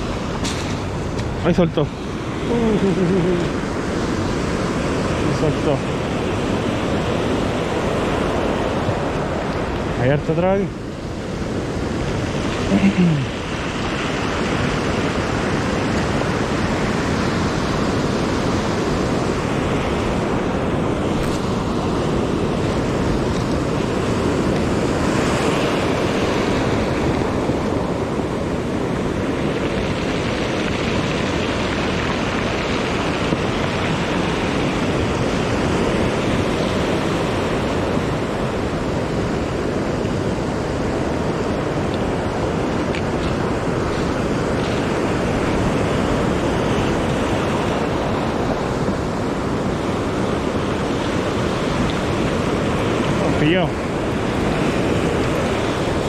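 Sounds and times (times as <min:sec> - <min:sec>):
ocean surf breaking: 0:00.0 - 0:56.0.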